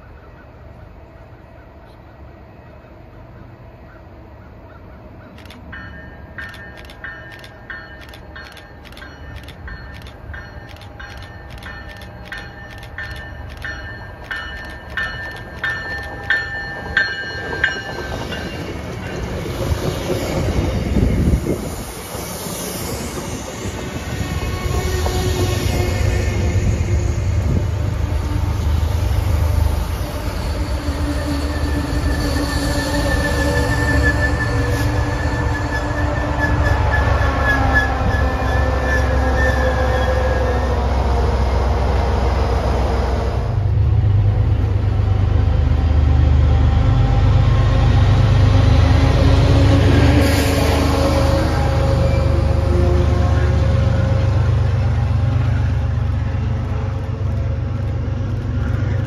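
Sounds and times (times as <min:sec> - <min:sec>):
train wheels rumbling on rails: 0:00.0 - 0:59.0
railroad warning bell ringing: 0:05.4 - 0:19.6.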